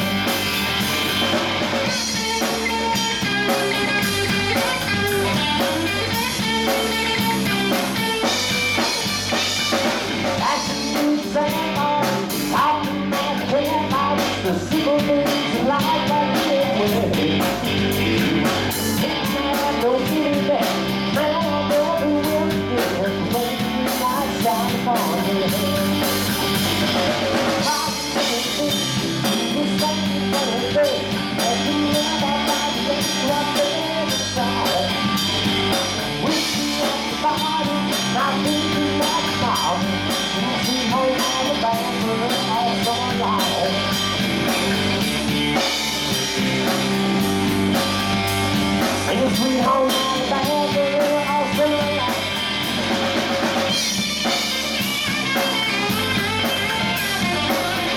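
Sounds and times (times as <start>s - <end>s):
drum kit: 0.0s - 57.9s
electric bass: 0.0s - 57.9s
electric guitar: 0.0s - 57.9s
man singing into a microphone: 10.4s - 17.6s, 19.0s - 26.7s, 27.6s - 35.4s, 36.2s - 44.2s, 49.0s - 52.6s.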